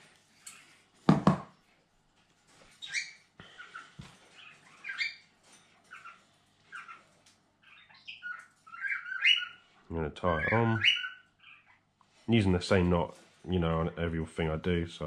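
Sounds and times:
cockatiels chirping: 2.7 - 11.9.

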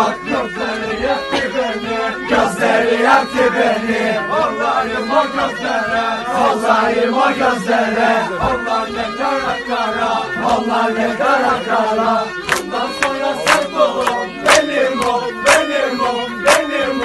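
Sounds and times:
crowd singing a folk song: 0.0 - 17.0
hand claps: 12.4 - 17.0.

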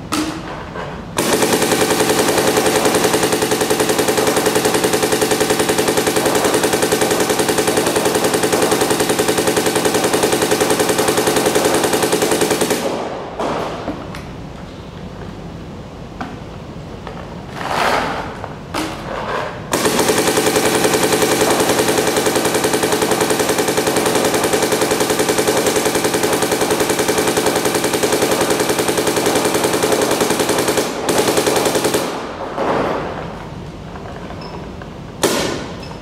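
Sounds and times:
paintball marker rapid firing: 1.2 - 13.6, 19.7 - 32.4.

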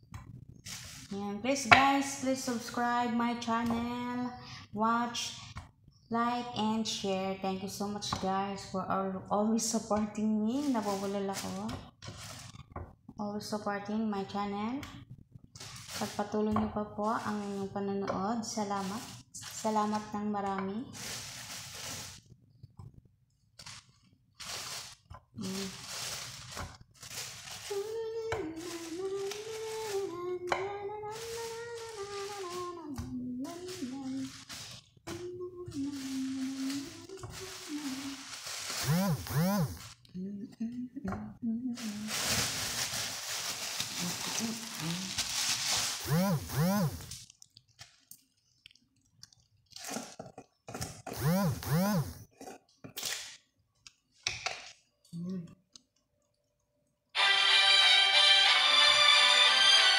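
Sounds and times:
plastic bag rustling: 0.4 - 1.3, 9.6 - 12.7, 15.5 - 22.4, 23.6 - 40.0, 41.8 - 50.6
person humming a tune: 27.7 - 34.3, 35.1 - 38.2, 38.8 - 42.1, 44.0 - 45.2, 46.0 - 47.0, 51.2 - 52.1.

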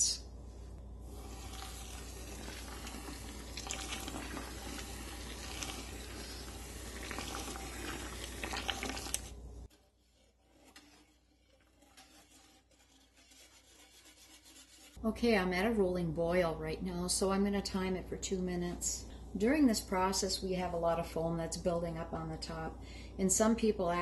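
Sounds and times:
liquid boiling: 1.0 - 13.2
sugar pouring into pot: 1.1 - 9.4.

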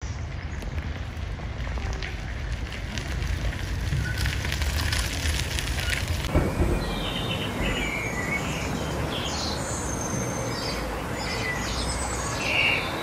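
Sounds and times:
low rumble: 0.2 - 11.0
songbirds chirping: 5.9 - 13.0
outdoor hiss: 6.2 - 13.0.

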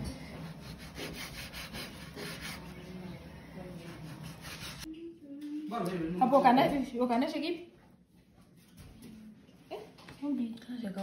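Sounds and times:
scraping strokes: 3.8 - 4.9.

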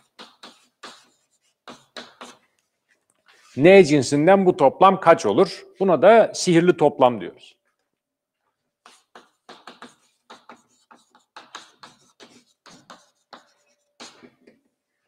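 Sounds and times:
chalk scratching on blackboard: 0.0 - 2.5, 8.8 - 14.4.

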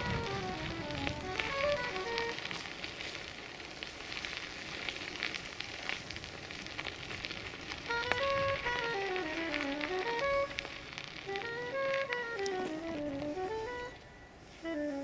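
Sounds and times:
footsteps on gravel: 0.0 - 15.0.

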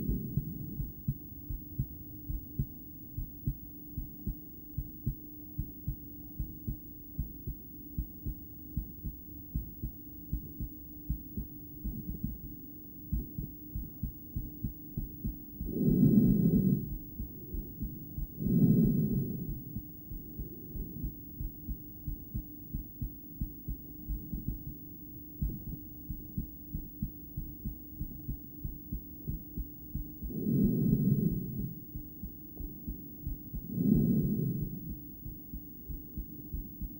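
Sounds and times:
faint steady hum: 0.0 - 36.9
heartbeat thumps: 0.0 - 36.9
breathing noise: 15.6 - 19.8, 33.5 - 35.0.

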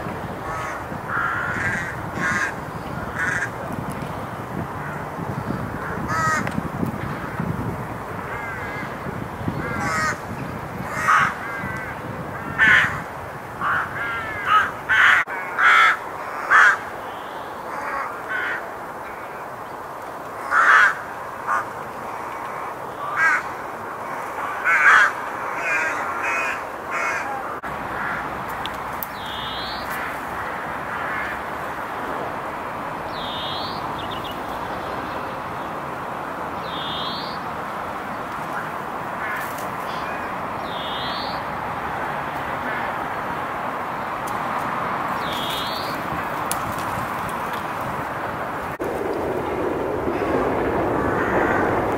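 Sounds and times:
rooks cawing: 0.4 - 3.6, 4.8 - 6.5, 8.2 - 19.4, 20.4 - 31.9, 38.5 - 41.4, 42.6 - 43.1, 50.1 - 51.9.

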